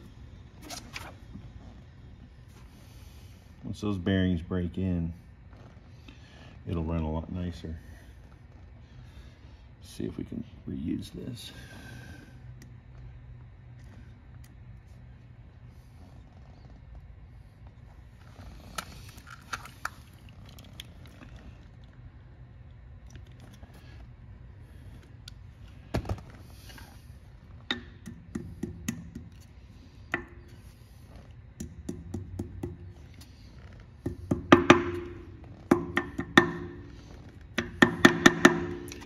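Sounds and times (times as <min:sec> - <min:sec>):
hammer tapping metal: 0:34.3 - 0:36.8, 0:37.6 - 0:39.0.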